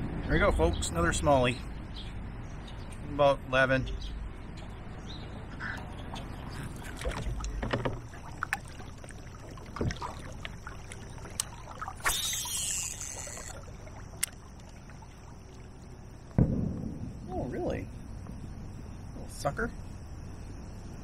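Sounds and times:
small knocks and clicks: 7.1s - 8.1s
brief whir: 12.0s - 13.6s.

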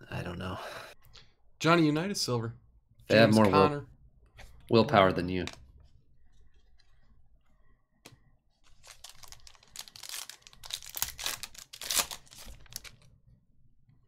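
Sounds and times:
foil wrapper tearing and crinkling: 8.6s - 13.1s.

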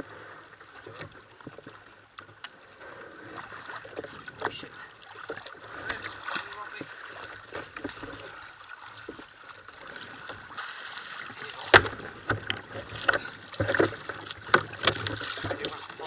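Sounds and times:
water washing against kayak: 0.0s - 16.0s
knocks against hull: 10.0s - 16.0s.

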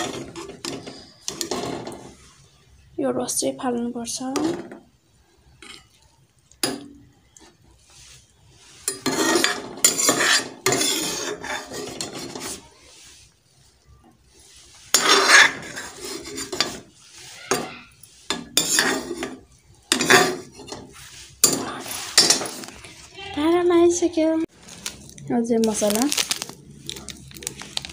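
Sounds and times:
ladle scraping a steel pot: 0.0s - 2.5s, 6.6s - 13.6s, 14.2s - 23.5s.

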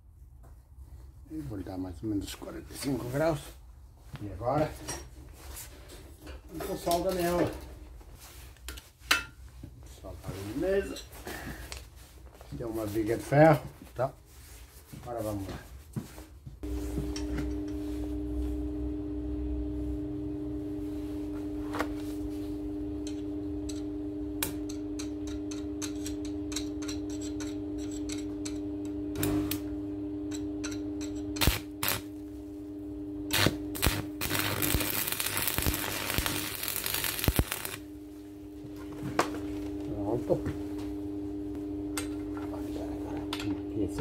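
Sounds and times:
welder humming: 16.6s - 44.0s
welding arc crackling: 30.6s - 38.1s.

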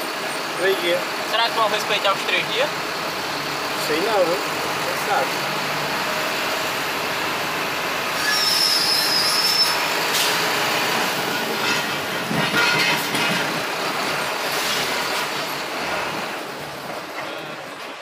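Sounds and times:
vehicle road rumble with rattles: 0.0s - 18.0s
high squeal: 8.0s - 10.5s.

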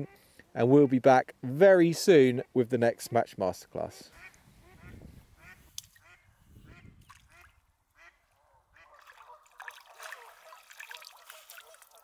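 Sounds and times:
waterfowl quacking and honking: 4.1s - 10.6s
fish splashing in water: 8.9s - 12.0s.

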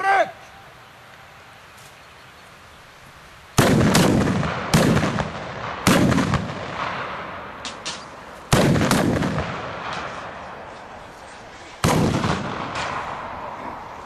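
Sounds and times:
faint sharp cracks: 3.6s - 10.4s
rifle shots with echo: 3.6s - 10.6s, 11.8s - 13.6s.

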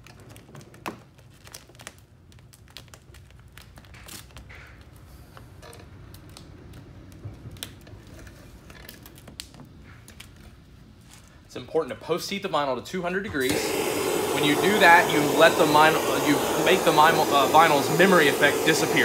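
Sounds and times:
tint film crinkling and tapping: 0.0s - 11.4s.

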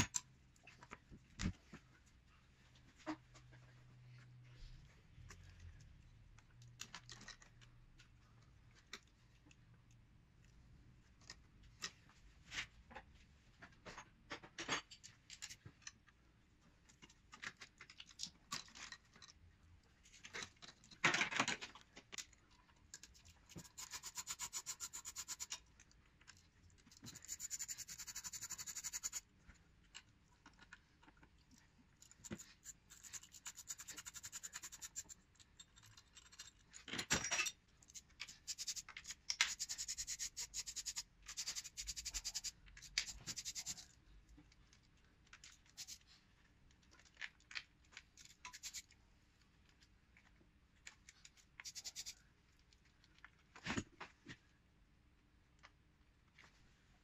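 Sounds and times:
hand ratchet clicking: 23.6s - 25.5s.

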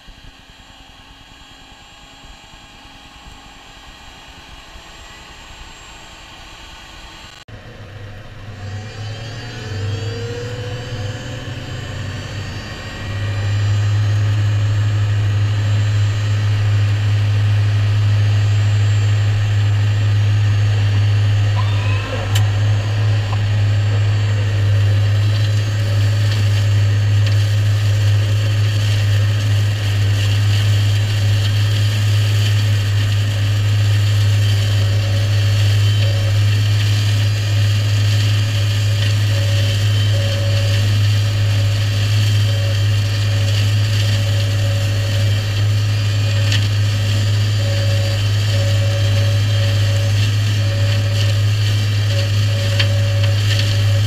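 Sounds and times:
hedge cutter flail whine: 8.6s - 54.0s
tractor engine under load: 11.4s - 54.0s.

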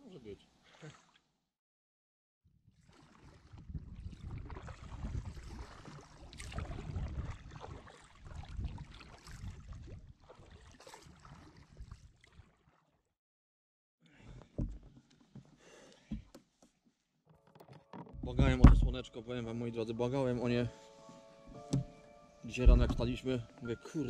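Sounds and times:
paddle splashing into water: 2.8s - 12.9s, 18.1s - 19.0s, 22.6s - 23.2s
wind rumbling on microphone: 3.4s - 10.2s, 18.2s - 19.0s.

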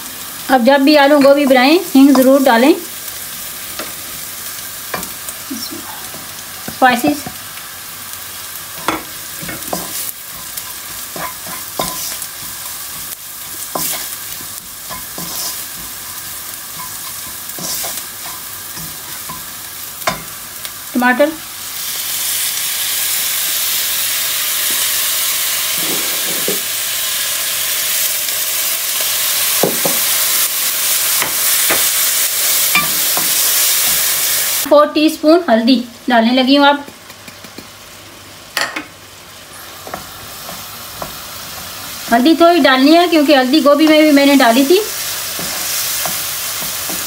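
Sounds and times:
food sizzling in oil: 0.0s - 47.0s
wooden spatula scraping pan: 14.9s - 16.0s.

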